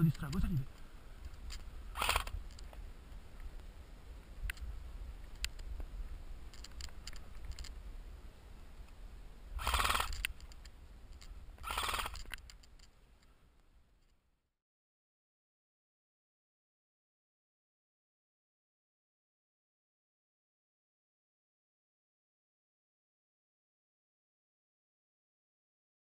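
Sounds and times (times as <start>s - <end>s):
scattered clicks: 0.0s - 2.8s, 6.5s - 7.8s, 9.6s - 13.7s.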